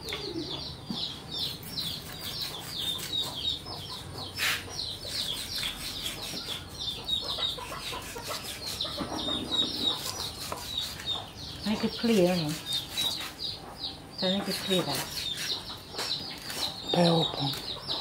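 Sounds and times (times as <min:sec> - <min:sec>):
chickens clucking: 0:00.0 - 0:18.0
chicks peeping: 0:00.0 - 0:18.0
cleaver scraping on chopping block: 0:01.4 - 0:03.6, 0:04.4 - 0:11.2, 0:12.0 - 0:13.4, 0:14.5 - 0:16.8.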